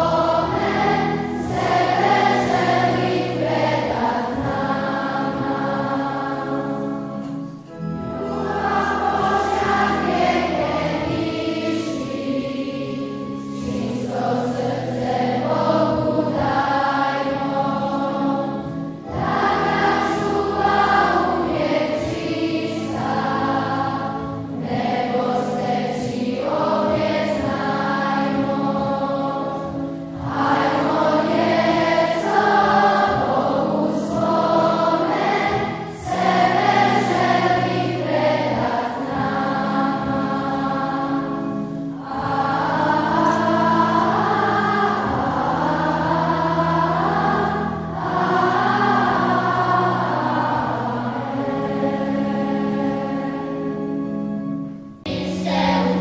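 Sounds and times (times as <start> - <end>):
children's choir singing a hymn: 0.0 - 56.0.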